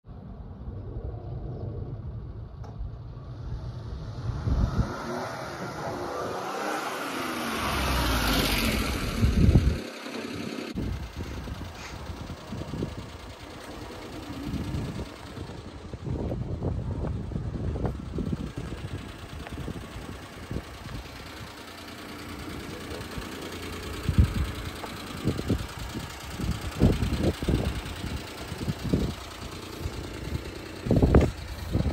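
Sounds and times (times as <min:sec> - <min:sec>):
low rumbles: 0:00.1 - 0:31.9
small truck driving past: 0:00.8 - 0:15.6
truck engine idling: 0:02.1 - 0:31.9.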